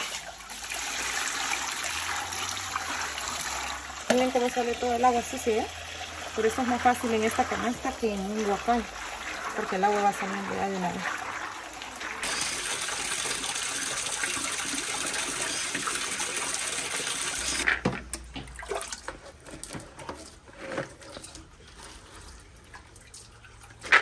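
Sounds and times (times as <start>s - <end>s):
water running onto kernels: 0.0s - 17.7s.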